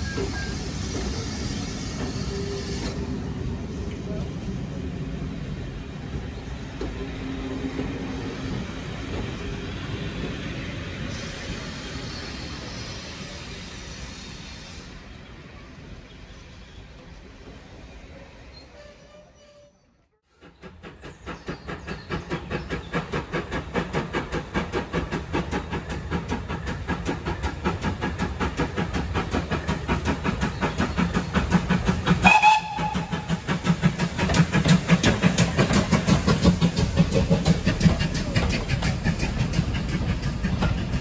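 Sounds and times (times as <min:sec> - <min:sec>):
steam locomotive chuffing: 0:00.0 - 0:17.9, 0:20.2 - 0:41.0
train coaches rolling by: 0:00.0 - 0:41.0
steam whistle toot: 0:32.2 - 0:33.4.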